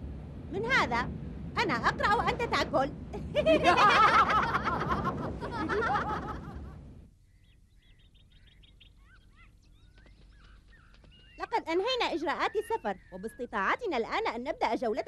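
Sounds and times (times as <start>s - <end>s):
cartoon boys laughing: 3.2s - 6.8s.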